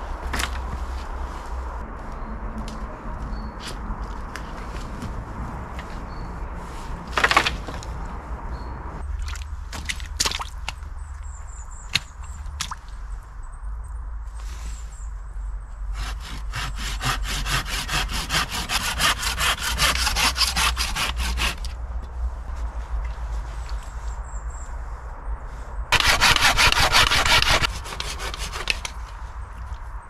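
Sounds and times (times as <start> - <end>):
saw cutting wood: 15.9 - 21.7, 25.9 - 29.0.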